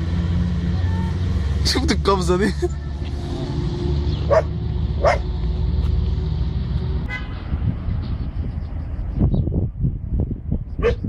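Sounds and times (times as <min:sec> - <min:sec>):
dog barking: 0:04.3 - 0:05.3, 0:10.8 - 0:11.0.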